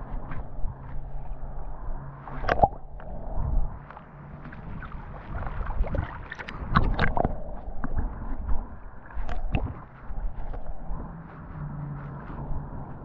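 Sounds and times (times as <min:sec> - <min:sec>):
low steady hum: 0:00.0 - 0:13.0
muffled underwater sloshing: 0:00.0 - 0:13.0.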